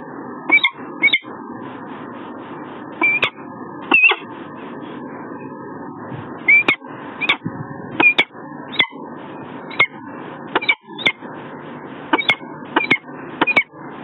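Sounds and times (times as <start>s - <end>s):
falcon calling: 0.5s - 1.3s, 3.0s - 4.2s, 6.5s - 7.4s, 8.0s - 9.0s, 10.6s - 11.2s, 12.1s - 13.7s.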